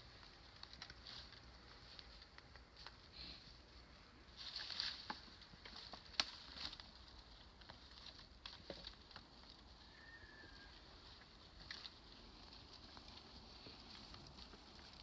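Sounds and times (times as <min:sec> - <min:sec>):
dry leaves and twigs rustling: 0:00.0 - 0:15.0
twig snapping: 0:04.5 - 0:07.0.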